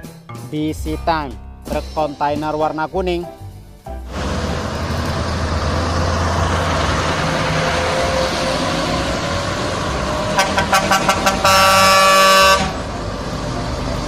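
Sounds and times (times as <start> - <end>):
truck diesel engines passing: 3.6 - 14.0
truck air horn: 10.2 - 12.9.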